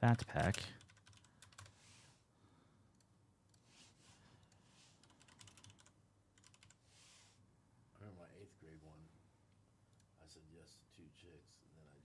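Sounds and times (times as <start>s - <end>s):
keyboard typing: 0.1s - 1.8s, 4.4s - 6.8s.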